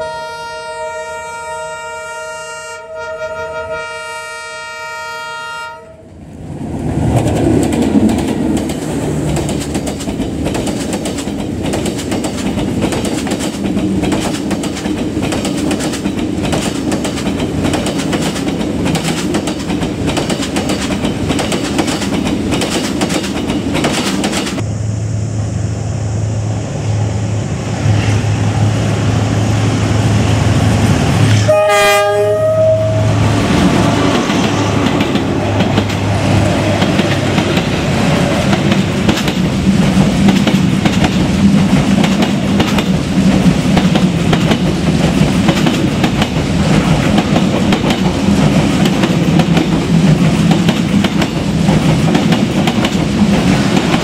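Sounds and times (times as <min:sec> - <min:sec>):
locomotive horn: 0:00.0 - 0:06.1, 0:31.3 - 0:33.4
train wheels clattering over rails: 0:06.8 - 0:24.6, 0:33.3 - 0:54.0
diesel engine drone: 0:24.6 - 0:31.4.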